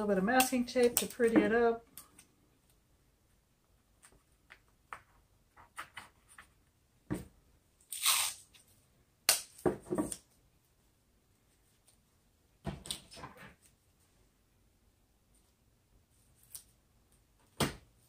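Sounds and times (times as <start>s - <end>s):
masking tape ripping: 7.8s - 8.6s.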